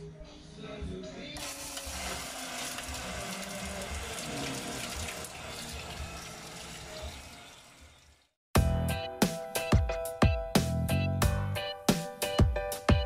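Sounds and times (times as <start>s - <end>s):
water gushing from pipe: 1.4s - 8.4s
water splashing: 1.8s - 8.3s.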